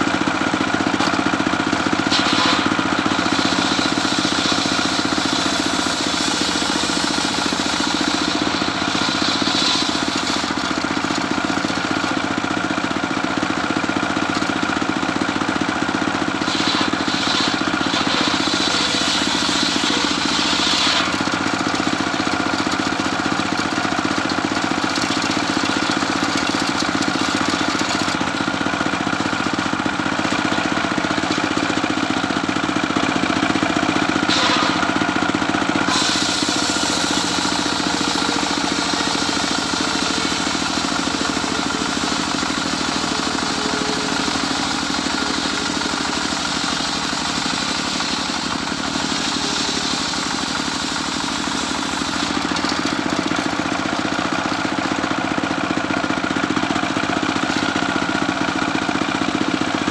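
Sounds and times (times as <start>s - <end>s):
circular saw blade cutting wood: 0.9s - 12.4s, 16.0s - 28.2s, 34.2s - 35.2s, 35.8s - 55.1s.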